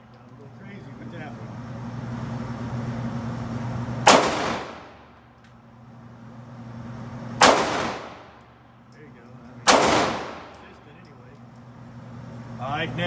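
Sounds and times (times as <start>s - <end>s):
handgun shots ringing indoors: 4.1s - 5.0s, 7.4s - 8.4s, 9.6s - 10.6s.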